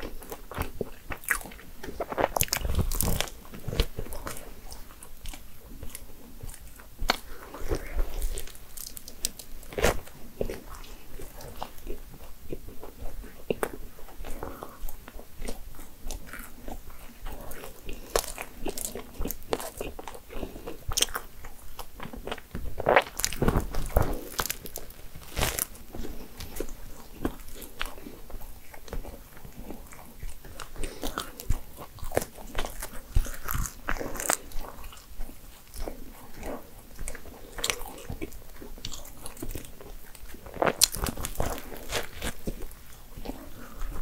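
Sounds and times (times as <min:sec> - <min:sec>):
crunchy bites and chewing: 0:00.0 - 0:44.0
crust crackling torn apart: 0:22.9 - 0:25.8.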